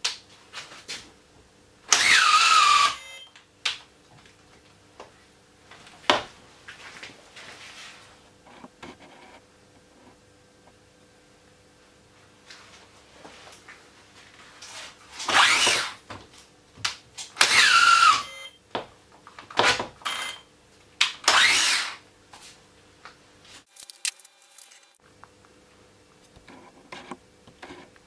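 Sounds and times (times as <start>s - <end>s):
cordless drill motor bursts: 1.9s - 3.2s, 15.3s - 16.0s, 17.4s - 18.4s, 21.2s - 22.0s.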